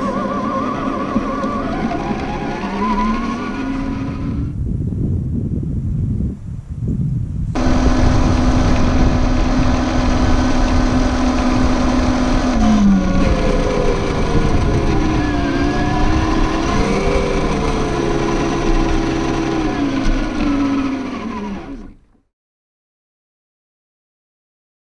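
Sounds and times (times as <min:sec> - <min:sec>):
toy truck electric motor whining: 0:00.0 - 0:04.5, 0:07.6 - 0:22.0.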